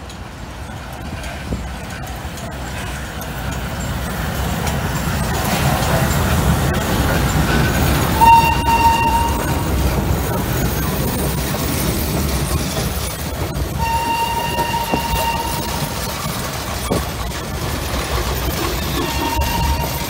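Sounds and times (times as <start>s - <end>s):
train wheels rumbling on rails: 0.0s - 20.0s
train whistle: 8.2s - 9.7s, 13.8s - 16.1s, 19.0s - 20.0s.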